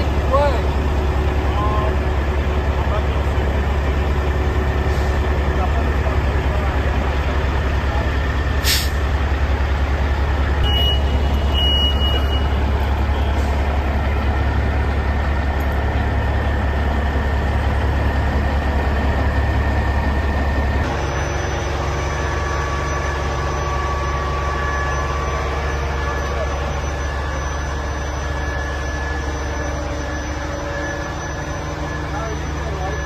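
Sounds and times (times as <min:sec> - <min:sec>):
truck engine rumbling: 0:00.0 - 0:33.0
short high beeps: 0:10.6 - 0:13.3.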